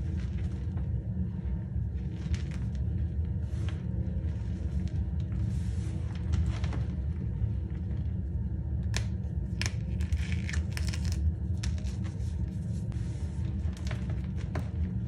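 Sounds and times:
low rumble: 0.0s - 15.0s
cornstarch crunching and squeaking: 9.5s - 12.1s.

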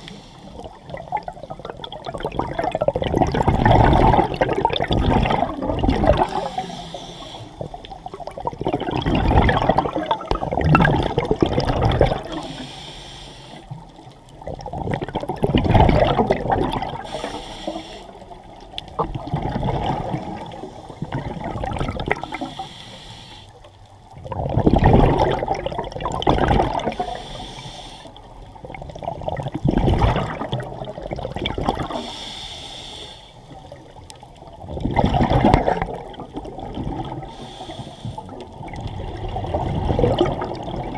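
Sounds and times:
regulator hissing inhale: 0.0s - 0.6s, 6.2s - 7.9s, 12.3s - 13.9s, 17.0s - 18.4s, 22.2s - 23.7s, 26.9s - 28.3s, 31.9s - 33.6s, 37.3s - 38.5s
gurgling exhaust bubbles: 0.6s - 6.6s, 8.1s - 12.4s, 14.4s - 17.1s, 18.9s - 22.4s, 24.2s - 27.1s, 28.6s - 32.0s, 34.6s - 37.3s, 38.3s - 40.9s.

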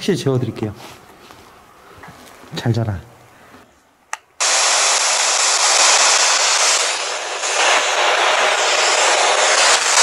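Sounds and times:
radio static hiss: 4.4s - 10.0s.

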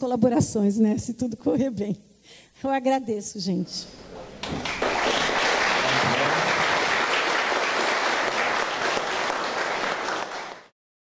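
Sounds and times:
audience applauding: 4.4s - 10.7s.

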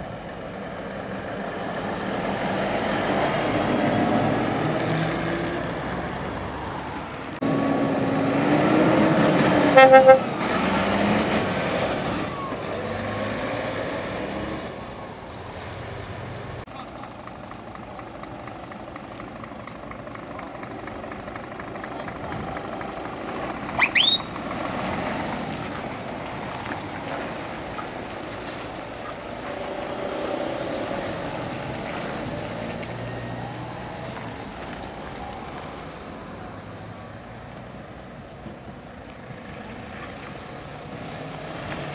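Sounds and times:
lorries driving past: 0.0s - 41.9s
truck horn toots: 9.3s - 11.0s, 23.8s - 24.4s.

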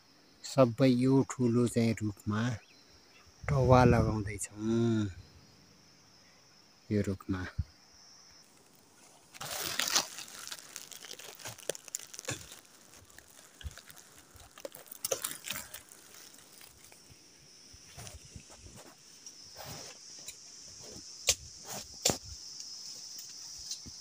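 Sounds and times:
dry straw rustling and crunching: 8.4s - 20.0s.

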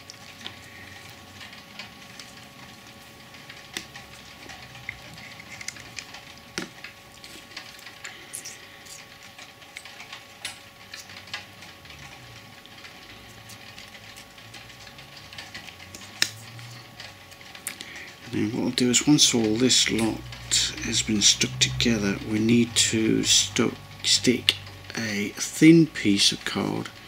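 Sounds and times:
faint steady hum: 0.0s - 27.0s
card pieces clicking and scratching: 4.8s - 9.2s.

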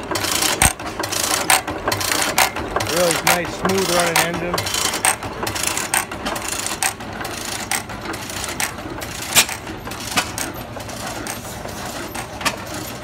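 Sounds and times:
stationary gas engines running: 0.0s - 13.0s.

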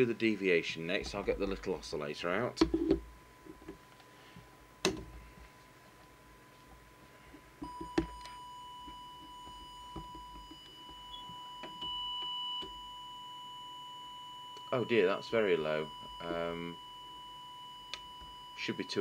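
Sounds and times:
high-pitched test tone: 7.7s - 19.0s.

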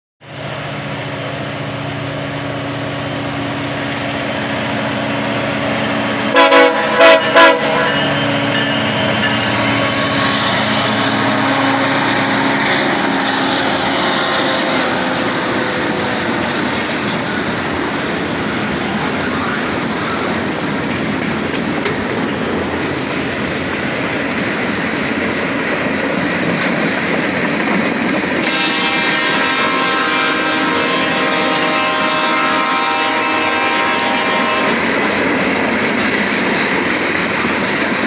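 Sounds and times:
locomotive engines rumbling: 0.2s - 38.0s
short loud horn toots: 6.3s - 9.2s, 28.4s - 34.8s
freight cars rolling and clattering: 15.3s - 28.4s, 34.9s - 38.0s.

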